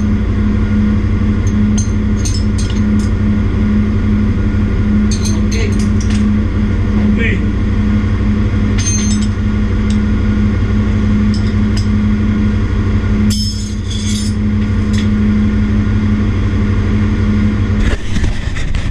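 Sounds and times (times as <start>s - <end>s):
engine room machinery drone: 0.0s - 18.9s
light metallic clinks: 1.5s - 3.2s, 5.1s - 6.3s, 8.8s - 10.0s.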